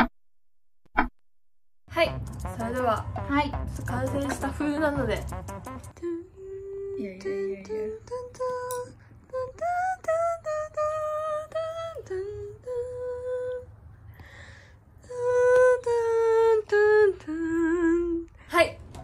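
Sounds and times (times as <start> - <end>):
person humming slow melody: 6.0 - 9.9.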